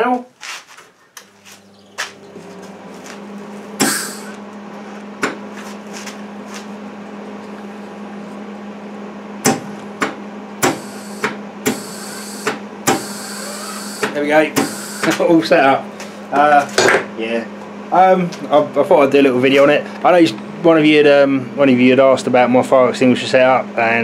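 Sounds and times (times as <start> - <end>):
welder transformer humming: 0.8 - 18.4
shielding gas hissing: 3.8 - 4.4, 10.6 - 15.1.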